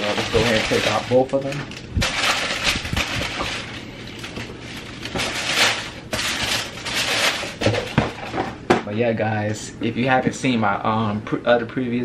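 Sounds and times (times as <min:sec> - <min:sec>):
tissue paper crinkling: 0:00.0 - 0:08.4.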